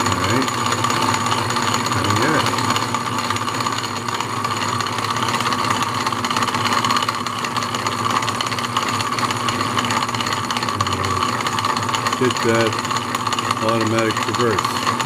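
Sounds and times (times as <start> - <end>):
lathe running: 0.0 - 15.0
lathe tool cutting wood: 0.0 - 15.0.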